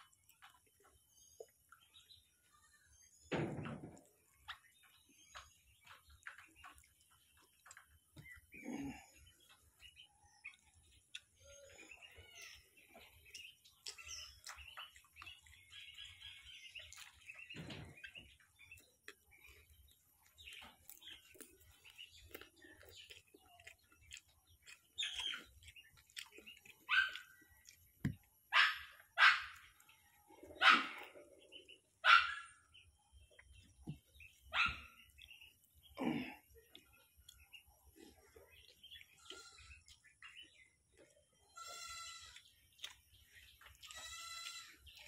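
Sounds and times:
clicks of eating: 0.0 - 2.2, 3.8 - 31.8, 33.1 - 45.0
birds chirping: 0.0 - 45.0
dog barking: 26.9 - 27.3, 28.5 - 29.6, 30.6 - 31.1, 32.0 - 32.6, 34.5 - 34.9.

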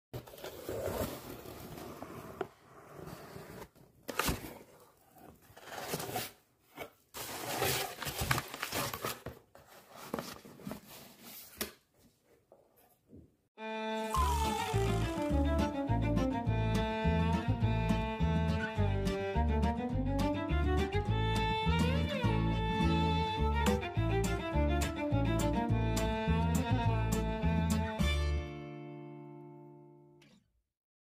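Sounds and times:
cardboard rustling and scraping: 0.2 - 12.2
music with string instruments: 13.6 - 30.0.

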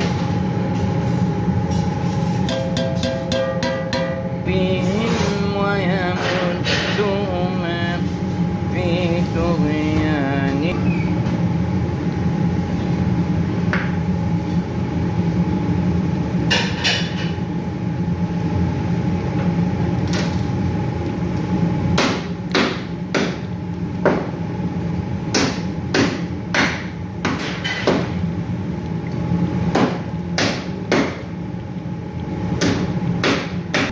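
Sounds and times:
low hum: 0.0 - 13.6
spoon knocking on metal pan: 2.5 - 4.3.

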